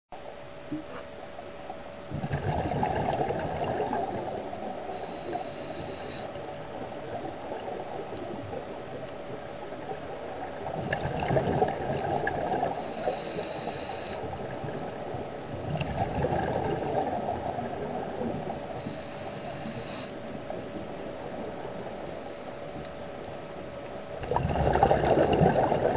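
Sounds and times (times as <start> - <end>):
bubbling exhaled air: 2.1 - 6.3, 24.2 - 25.9
regulator hiss on inhale: 4.9 - 6.3, 12.8 - 14.3, 18.8 - 20.3.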